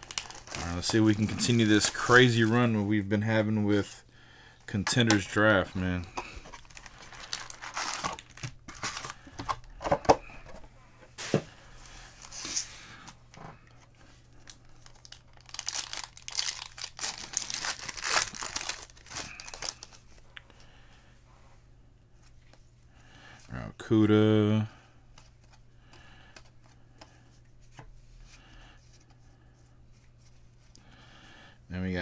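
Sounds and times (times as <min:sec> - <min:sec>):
foil wrapper crinkling: 0:00.0 - 0:02.7, 0:06.2 - 0:09.4, 0:14.4 - 0:20.1.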